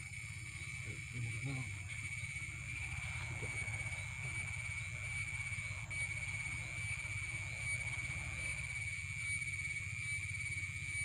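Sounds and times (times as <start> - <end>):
insect chorus drone: 0.0 - 11.0
steady low hum: 0.0 - 11.0.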